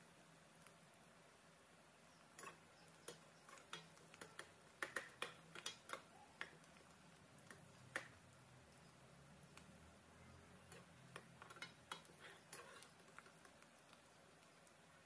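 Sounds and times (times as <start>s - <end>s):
skimmer clicking in frying pan: 2.4s - 8.2s.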